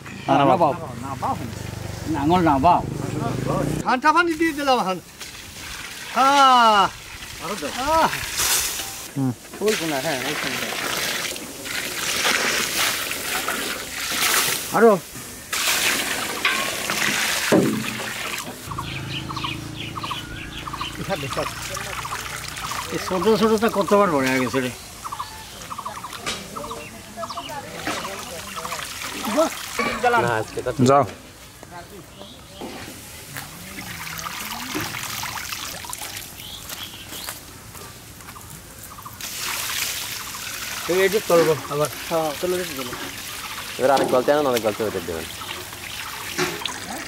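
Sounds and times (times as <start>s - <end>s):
water dripping and splashing: 4.2s - 31.1s, 32.6s - 47.0s
water sloshing in steel tray: 15.5s - 18.6s, 39.2s - 47.0s
faint birds chirping: 18.6s - 29.4s, 30.3s - 34.6s, 35.8s - 47.0s.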